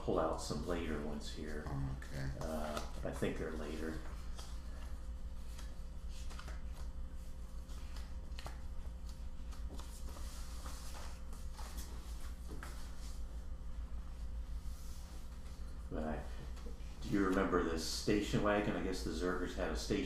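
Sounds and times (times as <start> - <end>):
steady low hum: 0.0 - 20.0
paper rustling: 2.4 - 13.3.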